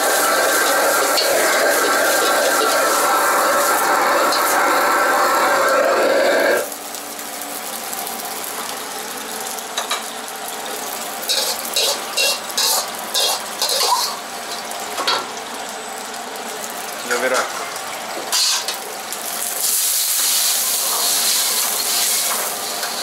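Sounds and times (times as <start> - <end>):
food hissing in wok: 0.0 - 6.7, 11.3 - 14.2, 19.4 - 23.0
metal ladle scraping a wok: 11.3 - 14.2.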